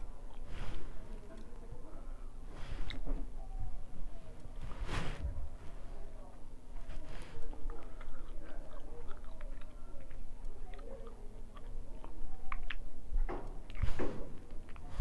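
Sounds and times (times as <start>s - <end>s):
person chewing with wet mouth clicks: 7.4s - 13.0s, 13.6s - 15.0s.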